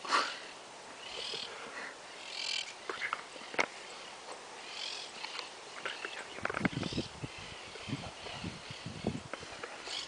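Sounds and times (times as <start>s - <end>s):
high-pitched animal calls: 1.0s - 1.6s, 2.2s - 2.8s, 4.6s - 5.4s.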